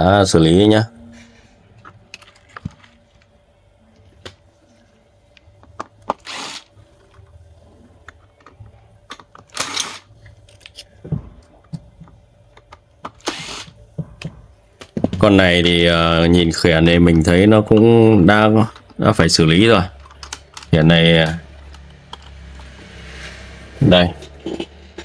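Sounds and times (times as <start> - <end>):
electric screwdriver spinning: 6.2 - 6.7, 13.2 - 13.7
clicks and knocks of handled parts: 20.0 - 22.8.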